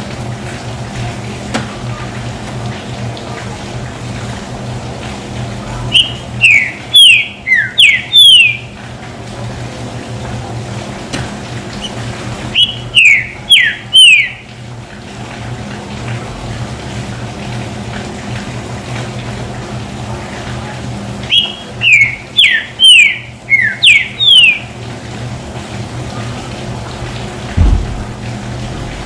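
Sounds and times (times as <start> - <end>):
bird singing whistled notes: 6.0 - 8.6, 12.6 - 14.4, 21.3 - 24.6.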